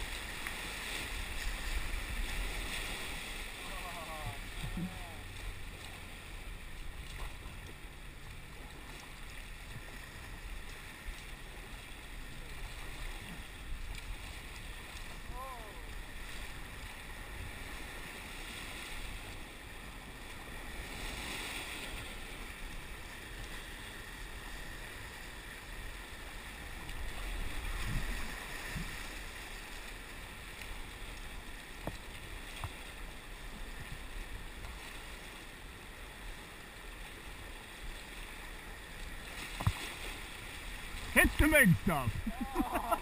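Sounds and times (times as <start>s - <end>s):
paddle strokes in water: 0.0s - 43.0s
rushing river rapids: 39.0s - 43.0s.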